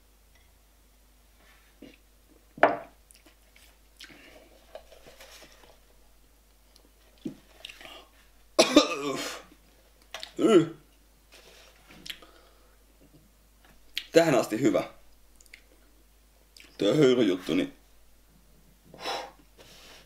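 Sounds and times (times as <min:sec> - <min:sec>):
man coughing: 0:08.6 - 0:09.4.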